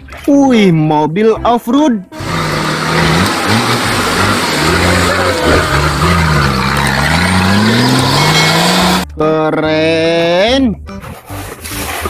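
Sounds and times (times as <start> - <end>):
rushing noise: 2.2 - 9.0
buggy engine revving: 2.2 - 9.1.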